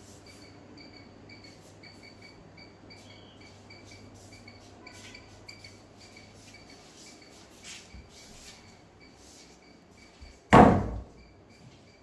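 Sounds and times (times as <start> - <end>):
door banging against wood: 10.5 - 11.1.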